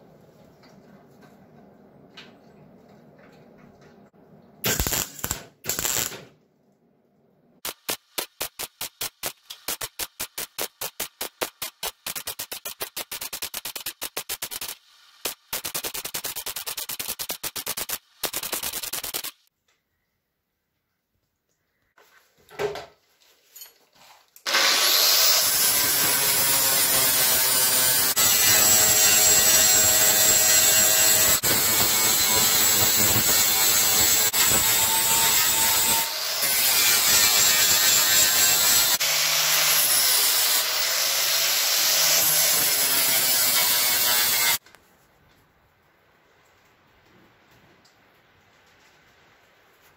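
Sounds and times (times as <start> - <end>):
welding arc crackle: 4.6 - 6.3, 7.6 - 19.5, 25.2 - 39.0
angle grinder grinding metal: 24.5 - 44.6.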